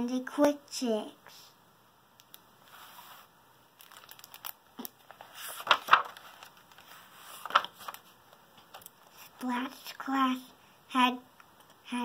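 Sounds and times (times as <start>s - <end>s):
book pages turning: 2.6s - 10.0s.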